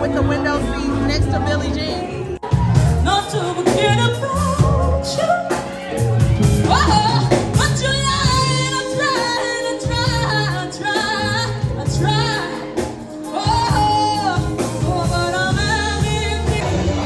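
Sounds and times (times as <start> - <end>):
band with bass and drums: 0.0 - 17.0
woman singing lead: 0.2 - 17.0.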